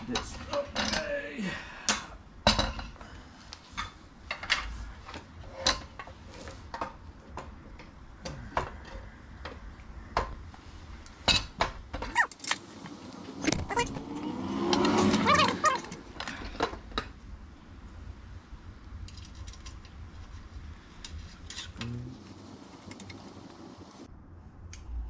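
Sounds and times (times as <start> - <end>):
bike rack parts clicking and clanking: 1.8 - 10.4
brief squeak: 12.1 - 12.4.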